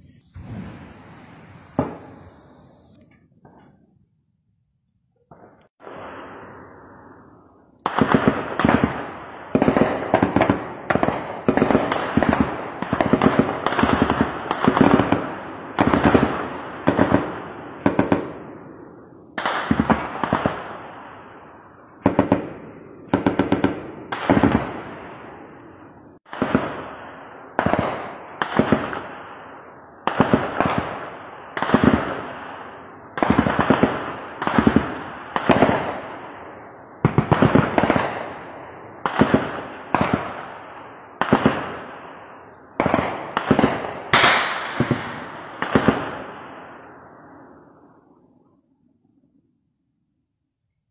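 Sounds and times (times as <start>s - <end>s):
gunshot echo rolling: 0.0s - 3.0s, 41.2s - 47.0s
automatic gunfire bursts: 42.8s - 46.0s.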